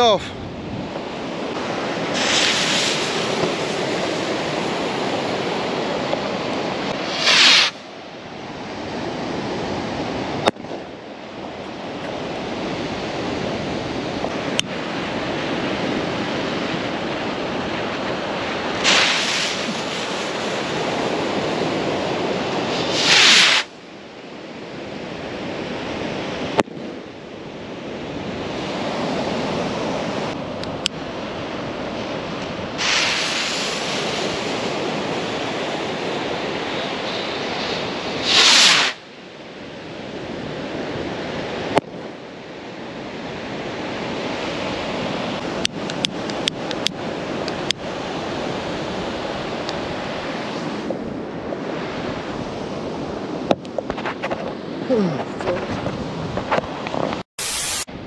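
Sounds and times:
surf: 0.0 - 7.9, 11.5 - 23.8, 27.9 - 41.8
rocket whooshing on liftoff: 1.4 - 7.9, 17.9 - 21.4, 22.5 - 23.8, 32.7 - 39.0
rocket fuse hiss: 2.1 - 3.3, 7.1 - 7.8, 18.8 - 20.4, 22.9 - 23.7, 32.8 - 34.1, 38.2 - 39.0, 57.4 - 58.0.

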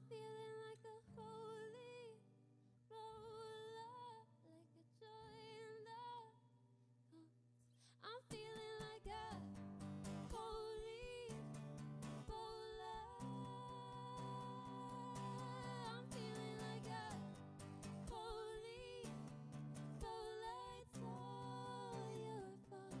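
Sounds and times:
woman singing: 0.0 - 2.3, 2.9 - 6.5, 7.9 - 9.6, 10.2 - 11.6, 12.2 - 19.3, 20.0 - 23.0
soft ringing acoustic guitar: 8.3 - 23.0
strummed acoustic guitar: 8.3 - 23.0.

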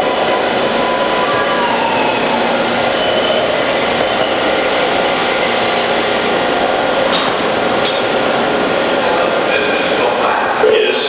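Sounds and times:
metallic whining and squealing: 0.0 - 8.2
train wheels rumbling on rails: 0.0 - 10.6.

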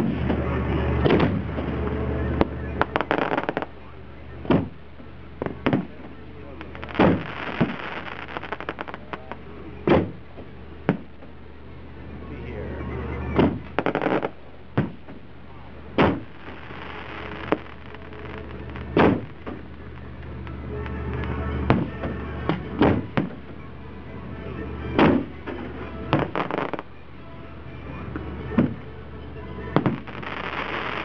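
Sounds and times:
firework shells booming: 0.0 - 11.4, 13.3 - 20.1, 21.1 - 23.6, 25.0 - 26.8, 28.5 - 28.9, 29.8 - 31.0
firework crackling: 0.0 - 31.0.

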